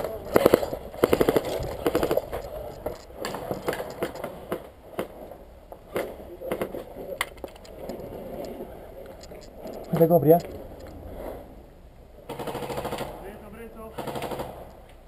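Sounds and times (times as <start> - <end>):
rapid rattle of clicks: 0.0 - 4.3, 6.6 - 11.0
footsteps on concrete and gravel: 0.0 - 4.4.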